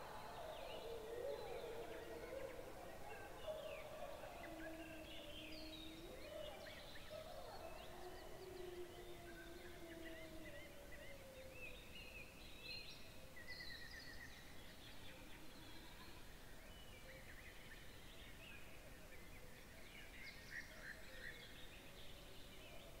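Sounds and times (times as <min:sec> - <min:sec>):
distant wolves howling: 0:00.0 - 0:11.6.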